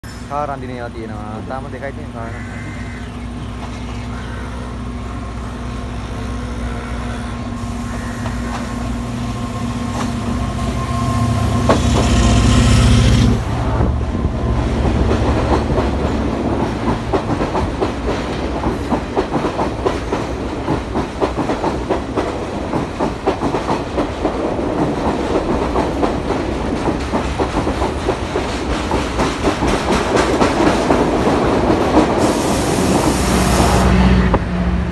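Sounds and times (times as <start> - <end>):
train engine hum: 0.0 - 34.9
clickety-clack of train wheels: 7.9 - 9.1, 9.8 - 34.5.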